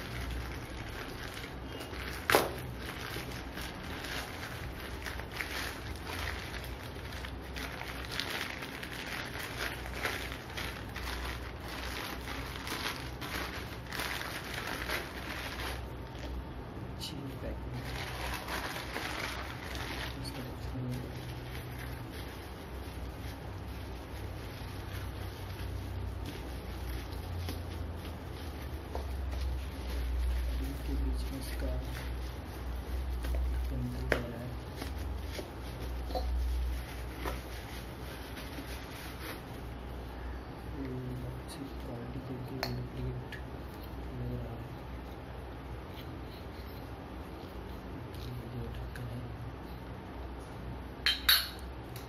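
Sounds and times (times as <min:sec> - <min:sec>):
plastic mailer bag crinkling: 0:00.0 - 0:16.4, 0:17.7 - 0:39.9
steady low hum: 0:00.0 - 0:52.0.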